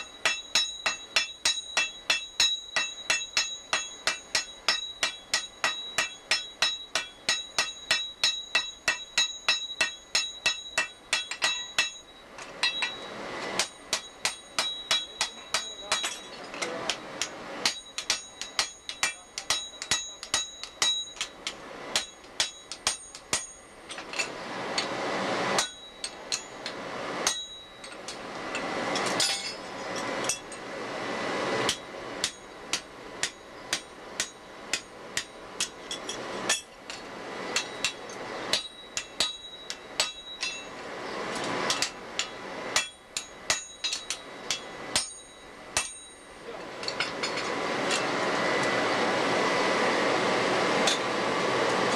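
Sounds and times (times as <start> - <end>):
hammers ringing on anvil: 0.0 - 24.9, 25.6 - 30.6, 31.7 - 36.8, 37.5 - 40.8, 41.7 - 48.1.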